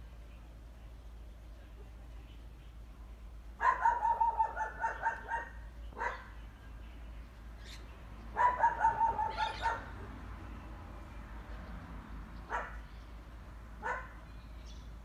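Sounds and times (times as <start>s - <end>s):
animal yapping: 8.4s - 9.9s.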